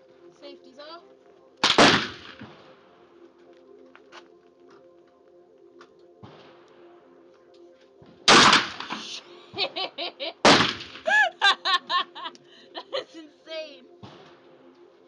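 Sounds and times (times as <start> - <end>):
shotgun shots with echo: 1.6 - 2.7, 8.3 - 9.1, 10.4 - 11.0, 14.0 - 14.5
woman laughing: 9.5 - 13.7.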